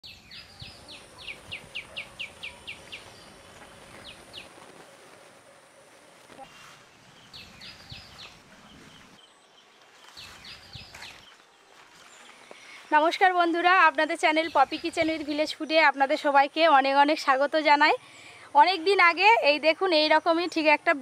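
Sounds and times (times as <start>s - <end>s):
faint outdoor background: 0.0s - 21.0s.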